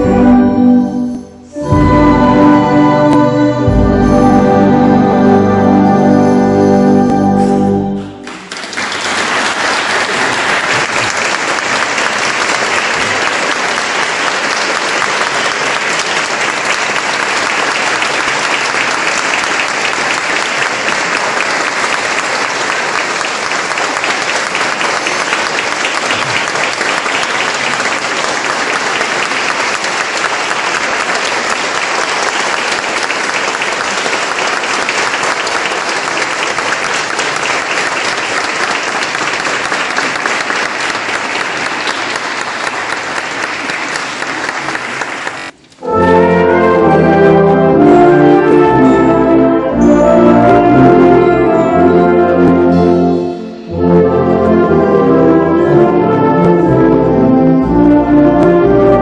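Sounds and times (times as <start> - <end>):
audience applauding: 8.0 - 45.7.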